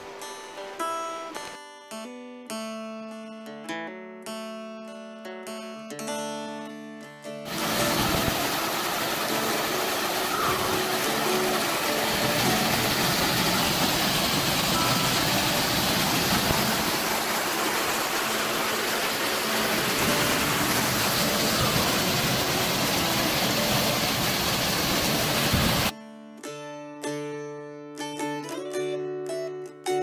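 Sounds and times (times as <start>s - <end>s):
waterfall rushing and splashing: 7.5s - 25.9s.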